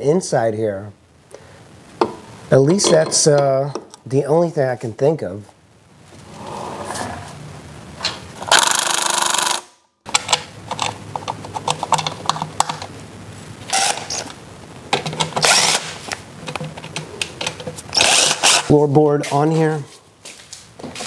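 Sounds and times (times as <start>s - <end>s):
power drill spinning bolts: 13.7s - 14.2s, 15.0s - 15.9s, 17.4s - 18.7s.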